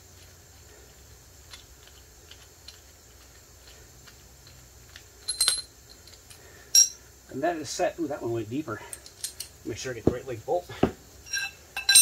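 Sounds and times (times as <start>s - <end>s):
ringing metallic clinks: 5.2s - 7.0s, 11.2s - 12.0s.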